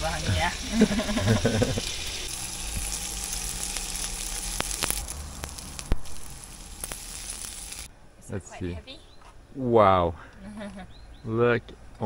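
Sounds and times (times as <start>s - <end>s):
meat sizzling in a pan: 0.0s - 7.9s.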